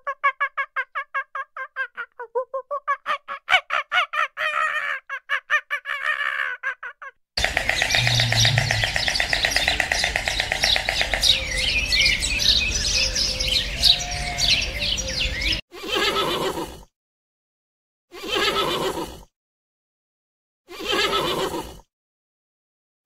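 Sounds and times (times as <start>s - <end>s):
small birds chirping and trilling: 7.4s - 15.6s.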